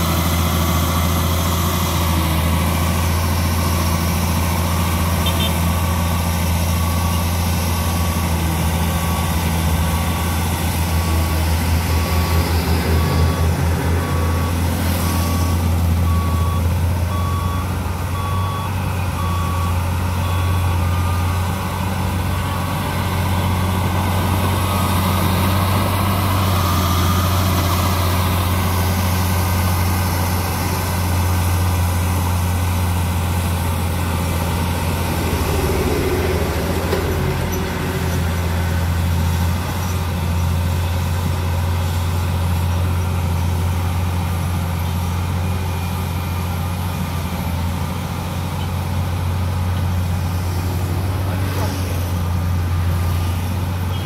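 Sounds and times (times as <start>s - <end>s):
reversing alarm beeping: 0.0s - 39.9s
bulldozer diesel engine: 0.0s - 54.0s.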